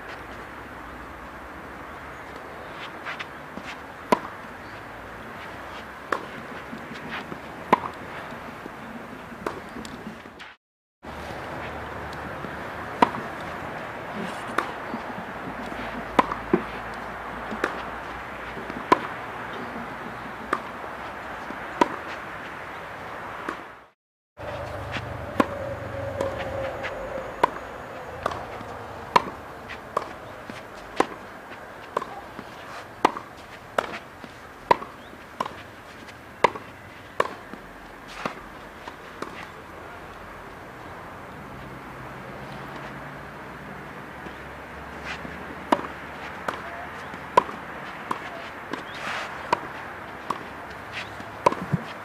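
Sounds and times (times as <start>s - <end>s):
tennis racket striking ball: 3.6s - 4.4s, 7.0s - 8.0s, 9.4s - 10.5s, 12.9s - 13.5s, 14.2s - 17.9s, 21.5s - 22.1s, 24.4s - 31.2s, 31.9s - 34.0s, 34.7s - 35.6s, 36.4s - 37.5s, 45.0s - 52.0s.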